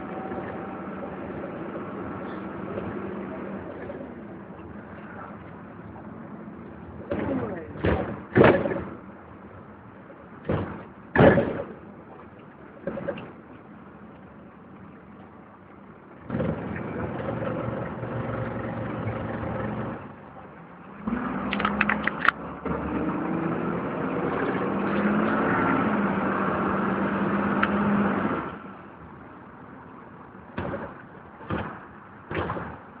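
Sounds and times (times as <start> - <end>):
bus engine idling: 0.0 - 33.0
bus engine pulling away: 0.0 - 33.0.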